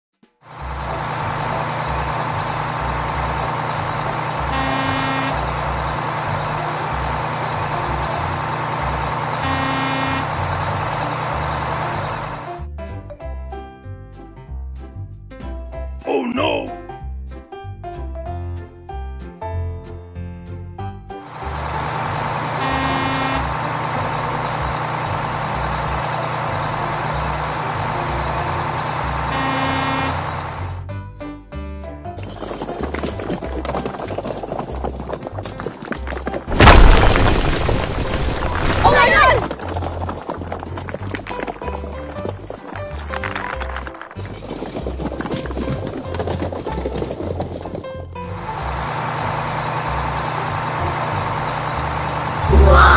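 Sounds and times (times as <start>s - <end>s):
truck engine rumbling: 0.5s - 12.7s, 21.2s - 31.0s, 32.2s - 52.9s
truck horn honks: 4.3s - 6.4s, 9.3s - 12.2s, 22.4s - 24.0s, 29.0s - 30.8s.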